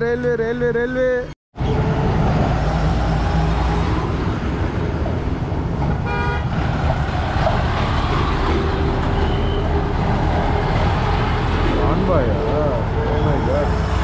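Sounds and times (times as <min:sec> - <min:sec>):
diesel truck engine rumble: 0:00.5 - 0:14.0
vehicle horn toot: 0:06.0 - 0:06.5.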